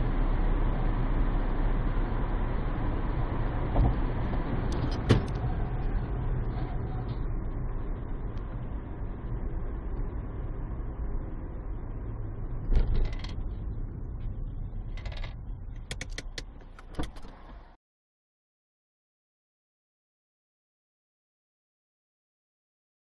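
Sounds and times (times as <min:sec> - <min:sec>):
car road and engine noise: 0:00.0 - 0:17.8.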